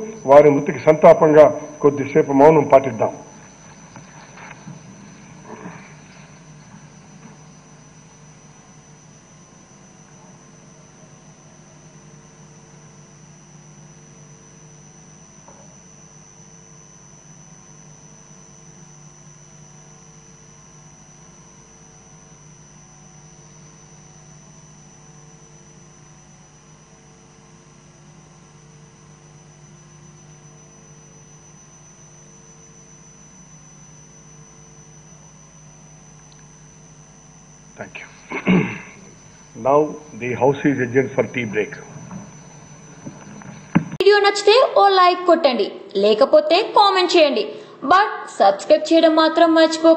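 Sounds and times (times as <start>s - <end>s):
faint pulsing tone: 0.0s - 49.9s
thin high whine: 0.0s - 49.9s
low hum: 31.4s - 44.8s.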